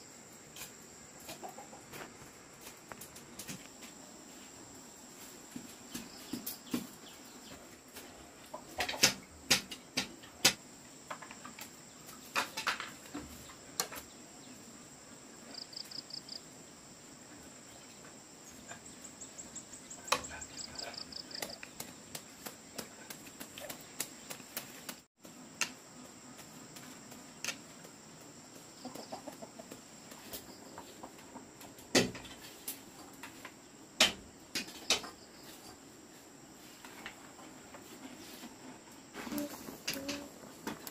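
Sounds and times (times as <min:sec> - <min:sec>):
sharp clicks and knocks: 0:08.8 - 0:11.7
high insect drone: 0:09.2 - 0:40.9.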